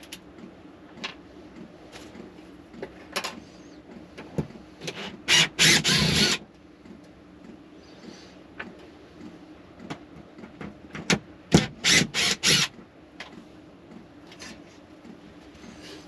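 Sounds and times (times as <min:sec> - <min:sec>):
cordless drill driving screw: 0:05.3 - 0:06.4, 0:11.8 - 0:12.7.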